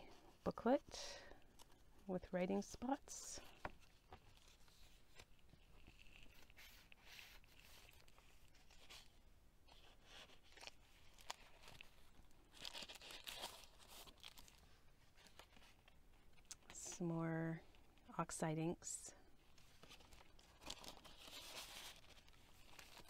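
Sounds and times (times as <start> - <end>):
paper rustling and crinkling: 3.4 - 16.5, 19.4 - 23.0.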